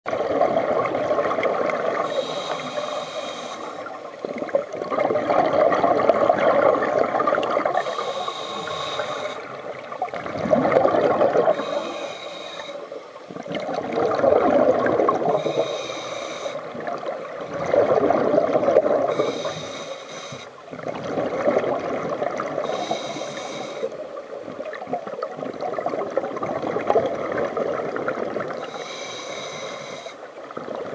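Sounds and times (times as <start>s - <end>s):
exhaled bubbles burbling: 0.1s - 2.2s, 3.8s - 8.0s, 9.4s - 11.8s, 13.2s - 15.8s, 16.6s - 19.3s, 20.7s - 22.9s, 23.9s - 28.8s
scuba regulator inhale hiss: 2.0s - 4.0s, 7.7s - 9.6s, 11.4s - 13.0s, 15.3s - 16.7s, 19.1s - 20.6s, 22.6s - 24.0s, 28.6s - 30.3s.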